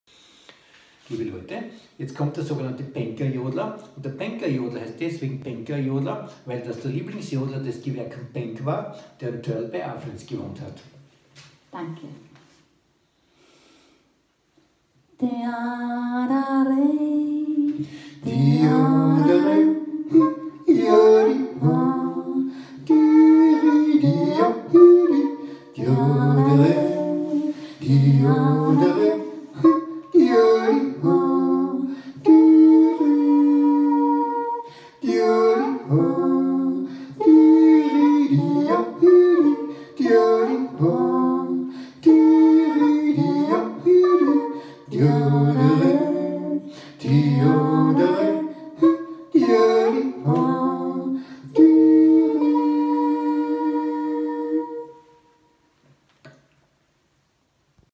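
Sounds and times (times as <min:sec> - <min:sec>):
woman and man yodelling: 0:22.9 - 0:36.5.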